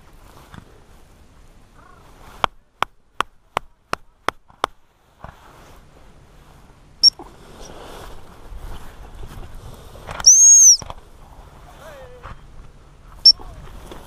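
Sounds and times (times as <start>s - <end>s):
gundog whistle pip: 10.2s - 10.8s.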